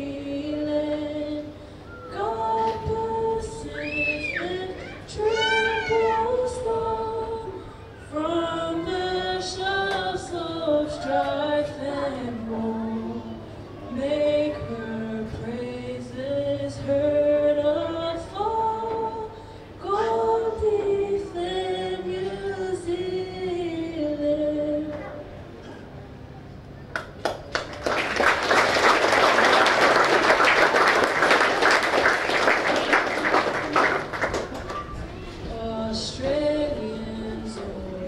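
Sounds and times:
woman singing: 0.0s - 25.2s, 35.1s - 38.0s.

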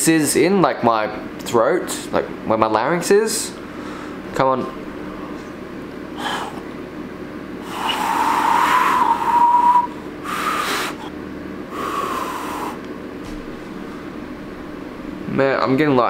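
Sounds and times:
finger whistle with rushing air: 7.6s - 11.1s, 11.8s - 12.8s.

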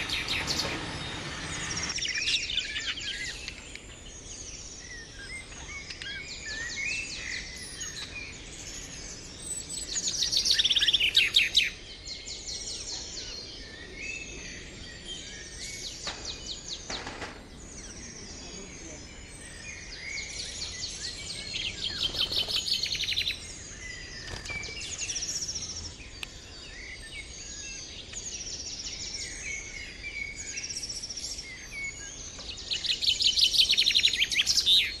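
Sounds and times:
budgerigars chattering and chirping: 0.0s - 26.8s.

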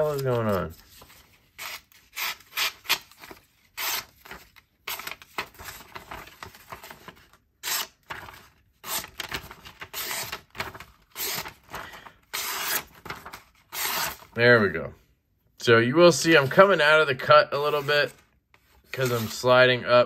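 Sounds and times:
paper rustling: 0.0s - 2.2s, 2.9s - 14.4s, 17.6s - 19.7s
knife slicing paper: 7.6s - 14.3s.

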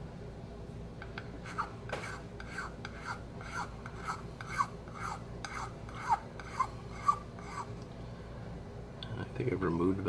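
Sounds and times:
file rasping on wood: 1.4s - 7.7s.

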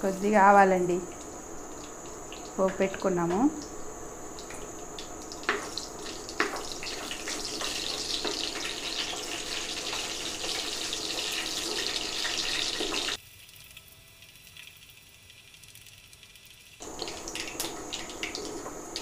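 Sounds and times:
hot oil sizzling: 0.0s - 19.0s
sharp pops of frying seeds: 1.1s - 19.0s.

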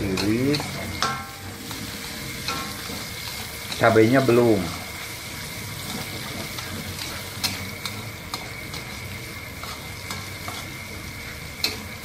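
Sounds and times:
metal spatula scraping a wok: 0.0s - 12.0s
vegetables sizzling in hot oil: 0.0s - 12.0s.

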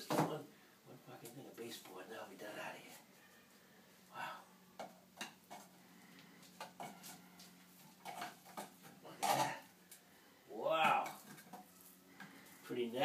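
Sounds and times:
faint steady hum: 0.0s - 13.0s
metal tool scraping paint can lid: 8.0s - 9.7s.

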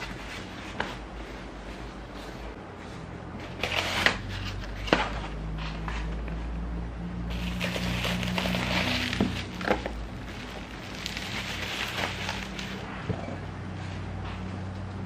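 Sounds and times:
bubble wrap crinkling: 7.3s - 13.0s.

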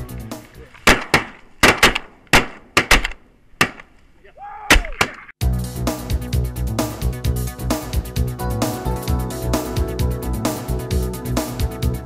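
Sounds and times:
music: 0.0s - 0.7s, 5.4s - 12.0s
shotgun shots with echo: 0.8s - 3.8s.

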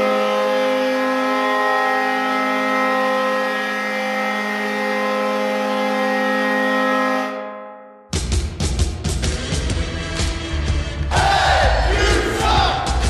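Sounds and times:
hockey goal horn blast: 0.0s - 8.1s.

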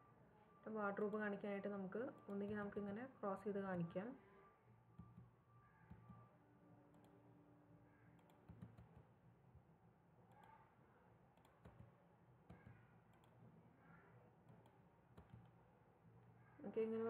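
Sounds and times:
faint room hum: 0.0s - 17.0s
soft computer mouse clicks: 6.9s - 7.2s, 8.1s - 9.1s, 10.3s - 10.6s, 11.4s - 13.4s, 14.4s - 15.6s.

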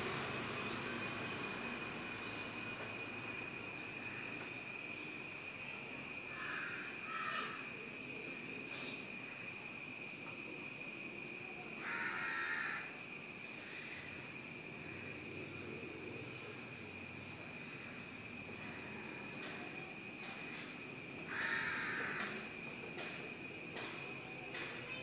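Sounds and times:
high-pitched insect drone: 0.0s - 25.0s.

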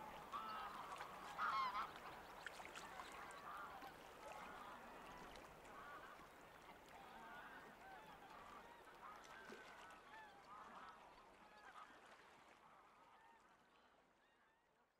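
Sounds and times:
waterbird flock calling: 0.0s - 4.8s.

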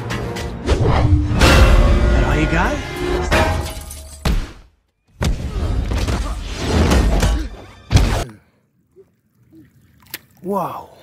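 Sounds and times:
hard hit: 1.1s - 3.8s.

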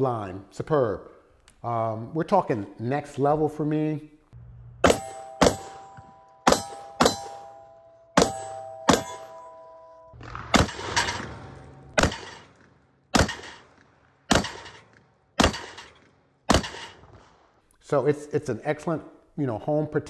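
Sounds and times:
steel targets clanging: 4.8s - 17.0s
shotgun shots: 8.2s - 9.4s, 10.2s - 17.6s.

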